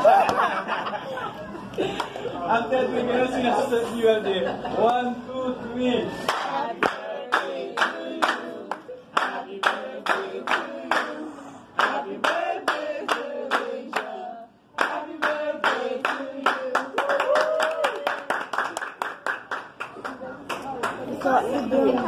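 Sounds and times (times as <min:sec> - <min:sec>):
group singing birthday song: 0:02.2 - 0:17.3
people clapping in time: 0:14.8 - 0:21.1.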